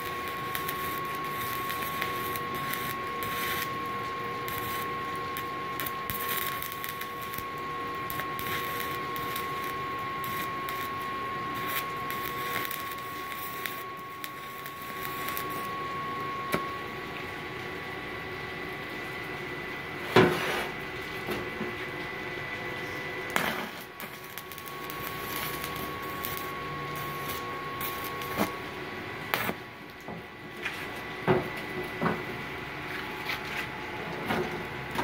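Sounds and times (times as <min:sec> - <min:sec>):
welding arc crackle and hiss: 0:00.0 - 0:17.0, 0:22.9 - 0:30.0
thin steady whine: 0:00.0 - 0:35.0.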